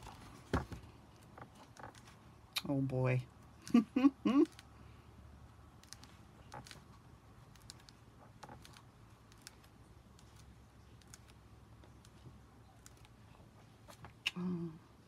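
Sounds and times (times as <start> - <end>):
book pages turning: 0.0 - 2.3, 5.8 - 14.2.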